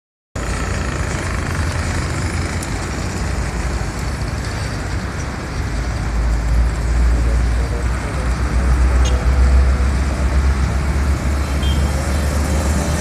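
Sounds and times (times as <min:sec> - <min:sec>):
traffic engine rumble: 0:00.4 - 0:13.0.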